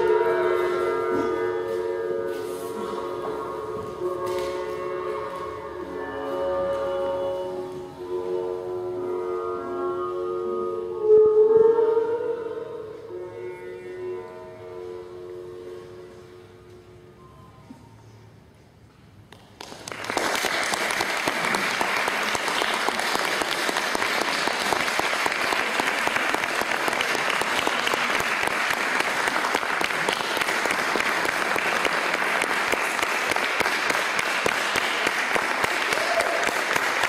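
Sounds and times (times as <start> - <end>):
audience applauding: 19.4 - 37.0.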